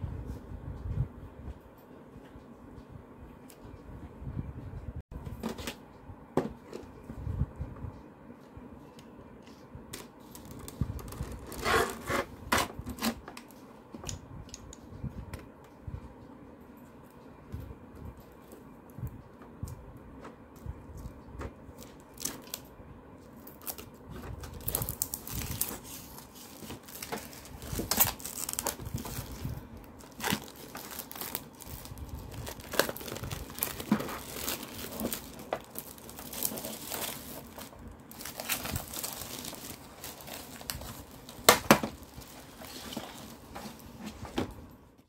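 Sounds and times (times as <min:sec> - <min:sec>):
plastic wrap crinkling: 0:10.2 - 0:12.1, 0:23.4 - 0:44.3.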